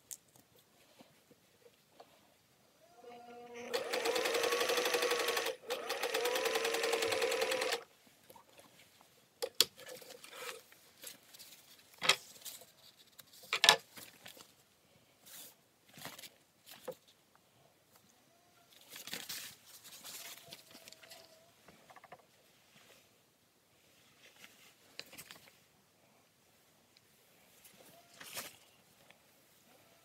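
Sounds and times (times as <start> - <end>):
faint handling noise: 0.0 - 2.6, 7.9 - 30.0
sewing machine running: 3.6 - 7.8.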